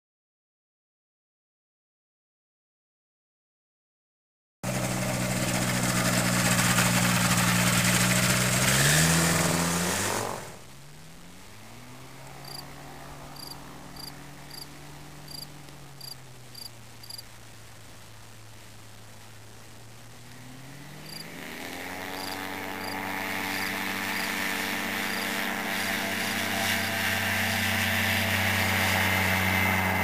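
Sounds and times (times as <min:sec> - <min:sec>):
trike engine and propeller: 0:04.6 - 0:16.5, 0:20.0 - 0:30.0.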